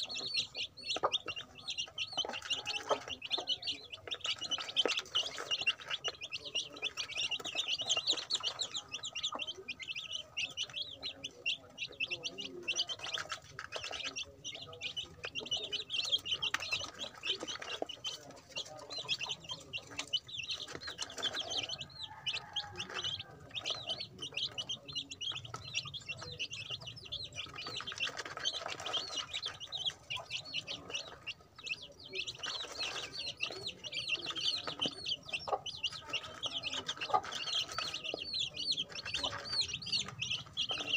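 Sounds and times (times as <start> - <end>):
chicks peeping: 0.0 - 40.9
scratching and pecking in gravel: 15.4 - 31.2.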